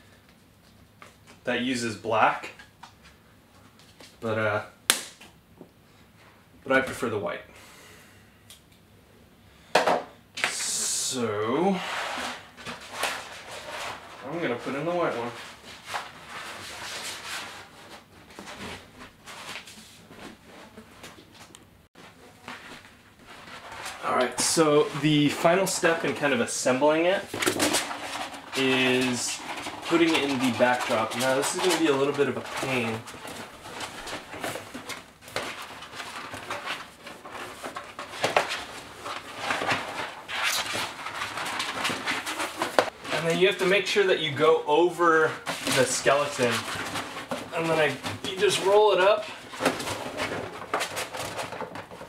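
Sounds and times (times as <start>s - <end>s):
faint rustling and handling: 10.6s - 52.0s.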